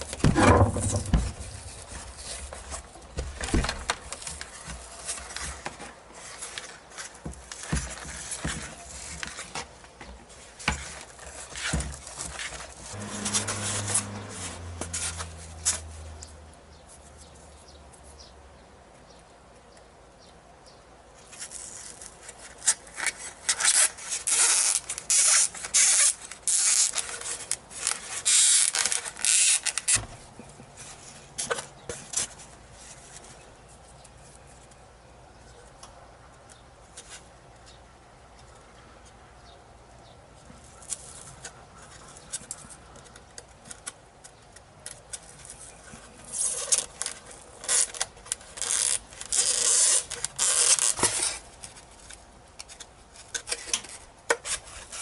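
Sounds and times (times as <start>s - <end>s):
foam and wood scraping: 0.1s - 16.2s.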